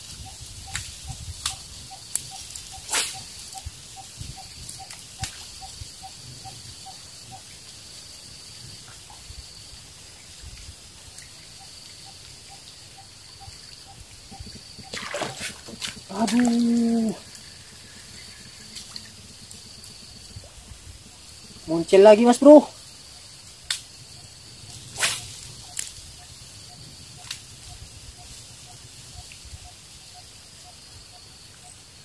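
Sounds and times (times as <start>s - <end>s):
swish: 24.9s - 25.3s.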